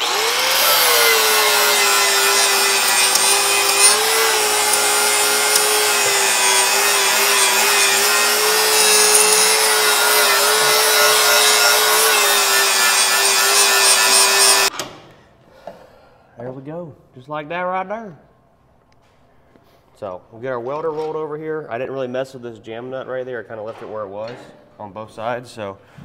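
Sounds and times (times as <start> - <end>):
angle grinder grinding metal: 0.0 - 14.7.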